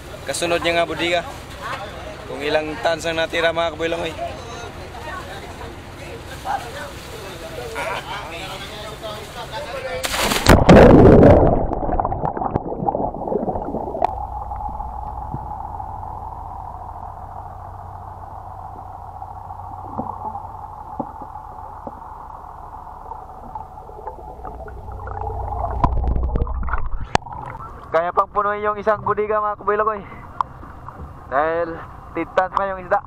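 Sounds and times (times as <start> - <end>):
diver splashing into water: 10.0 - 12.6
faint bubbling pops: 10.4 - 17.5, 18.6 - 28.0
muffled underwater drone: 11.0 - 33.0.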